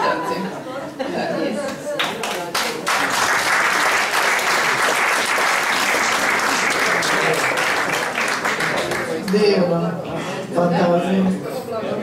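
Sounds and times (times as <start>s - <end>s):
audience applauding: 2.0s - 9.5s.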